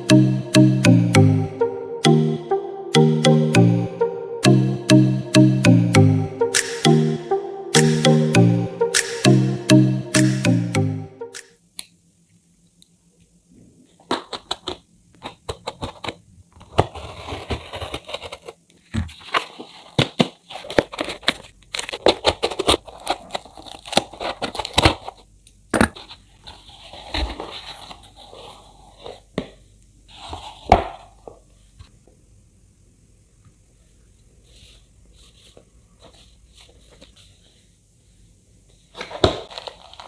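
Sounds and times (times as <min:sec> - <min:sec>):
packing tape and cardboard tearing: 0:16.6 - 0:18.6, 0:19.2 - 0:25.2.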